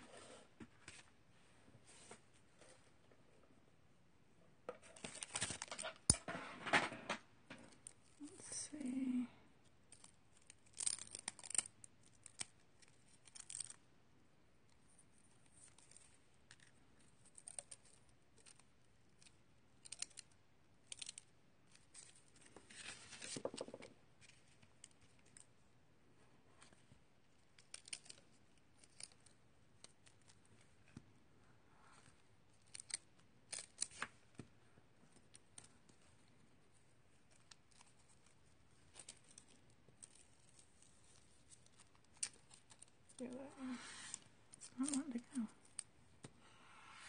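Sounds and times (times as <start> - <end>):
paper rustling: 21.7 - 25.4, 35.1 - 45.8.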